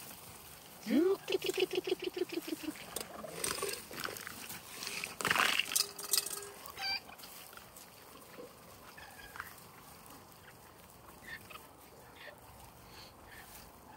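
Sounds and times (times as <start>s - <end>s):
chickens clucking: 0.8s - 4.5s, 6.3s - 13.9s
chicken squawk: 1.2s - 3.0s, 6.8s - 7.2s
shells clattering from metal bowl: 2.9s - 4.3s, 4.9s - 6.8s.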